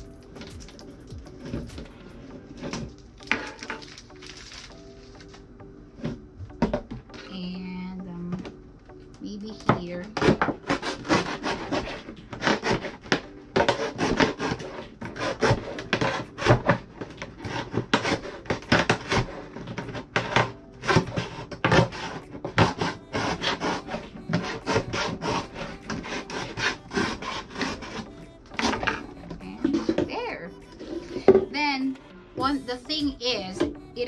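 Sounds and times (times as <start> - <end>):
knife sawing through plastic jug: 10.2 - 29.0.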